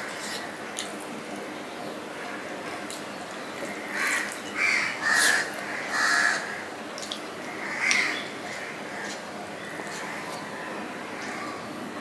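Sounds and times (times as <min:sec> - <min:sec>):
crow cawing: 0:03.9 - 0:06.7.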